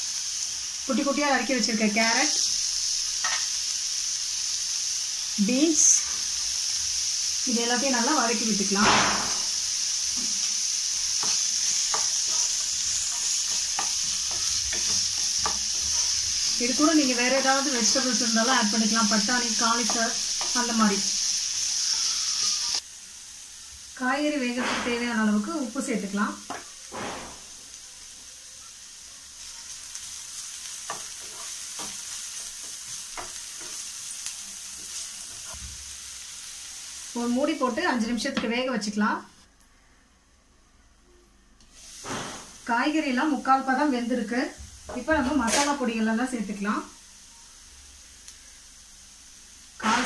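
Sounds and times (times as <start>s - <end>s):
vegetables sizzling in oil: 0.0s - 39.5s, 41.7s - 50.0s
spatula scraping and tapping pan: 11.2s - 16.6s, 30.8s - 34.2s.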